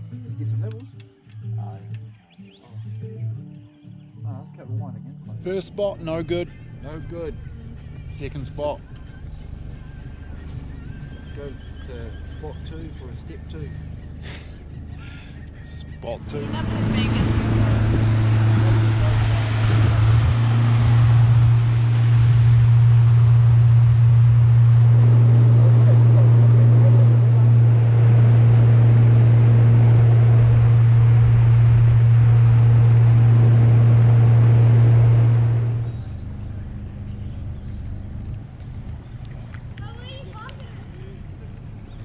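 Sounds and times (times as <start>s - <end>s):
boat engine running: 16.0s - 42.0s
low rumble: 16.1s - 42.0s
water rushing: 16.2s - 35.9s
wind rushing: 16.2s - 36.0s.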